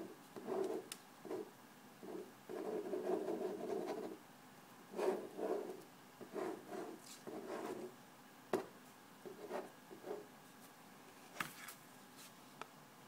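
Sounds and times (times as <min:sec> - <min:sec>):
marker scratching on paper: 0:00.4 - 0:04.2, 0:04.9 - 0:07.9.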